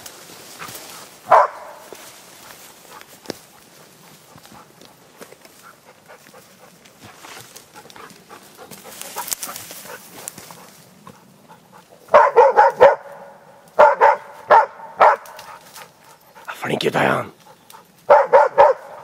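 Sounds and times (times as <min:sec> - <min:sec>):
rustling through brush: 0:00.0 - 0:16.6
dog barking in quick runs: 0:01.2 - 0:03.1, 0:11.8 - 0:16.6, 0:18.0 - 0:19.0.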